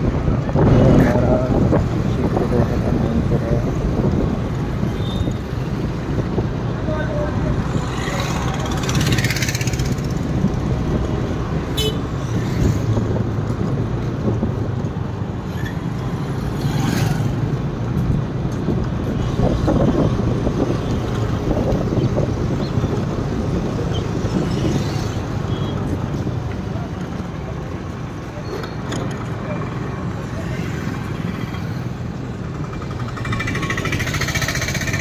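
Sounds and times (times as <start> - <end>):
street traffic rumble: 0.0 - 35.0
vehicle horn toot: 11.8 - 12.0.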